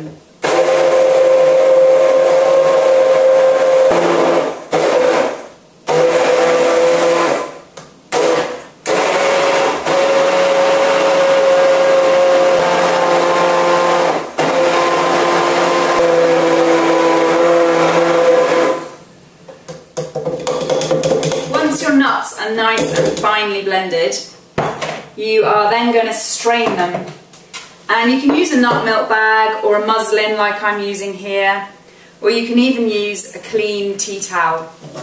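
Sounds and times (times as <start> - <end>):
immersion blender whirring: 0.4 - 19.0.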